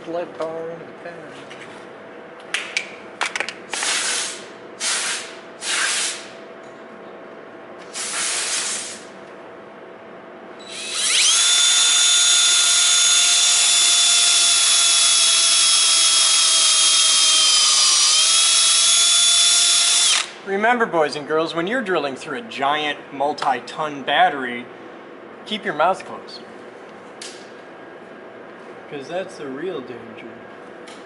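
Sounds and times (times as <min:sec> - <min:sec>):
power drill whining: 0:10.6 - 0:20.3.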